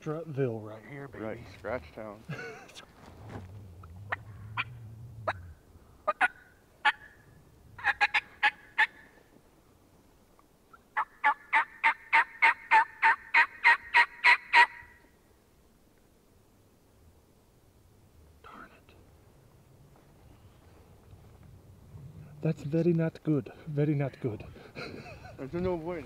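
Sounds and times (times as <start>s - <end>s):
turkey call yelps: 4.1s - 9.1s, 11.0s - 15.0s.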